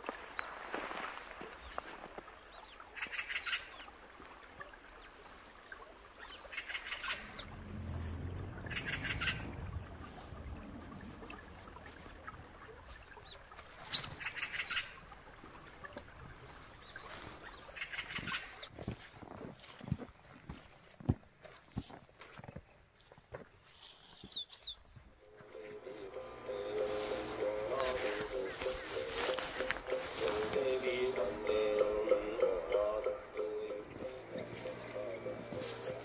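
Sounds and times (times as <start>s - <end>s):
low rumble: 7.1s - 13.3s
bird harsh rattling calls: 8.6s - 9.6s.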